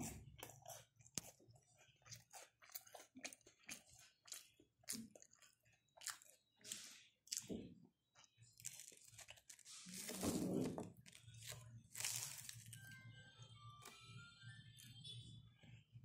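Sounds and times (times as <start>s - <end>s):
crunching fried snacks: 0.4s - 7.5s, 8.4s - 10.2s, 10.8s - 13.0s.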